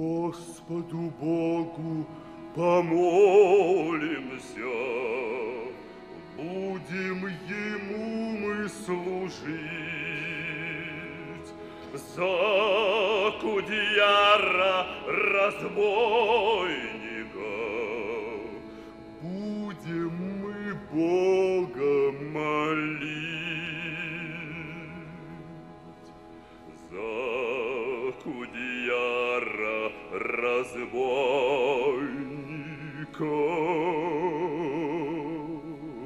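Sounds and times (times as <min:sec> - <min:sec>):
man singing with vibrato: 0:00.0 - 0:26.0, 0:26.7 - 0:36.0
choir holding notes: 0:00.0 - 0:36.0.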